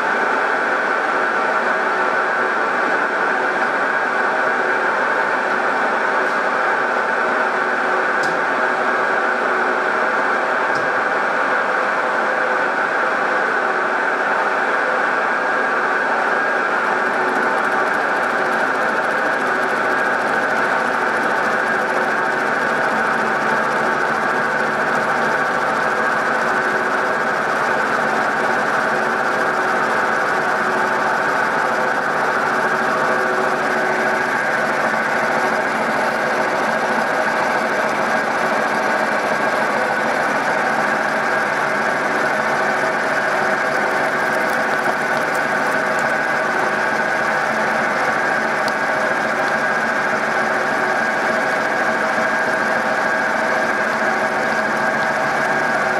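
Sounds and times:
gear whine: 30.0s - 52.3s
end mill cutting metal: 42.2s - 51.7s.

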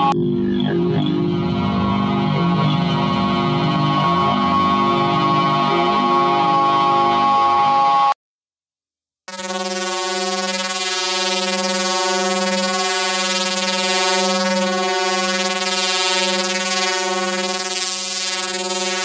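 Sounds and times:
ambient instrumental music: 0.0s - 8.1s.

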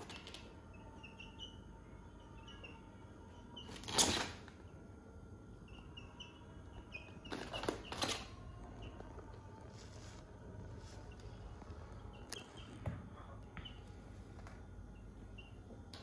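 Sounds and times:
chicks peeping: 0.0s - 4.8s, 5.5s - 16.0s
rustling noise: 9.6s - 11.8s.

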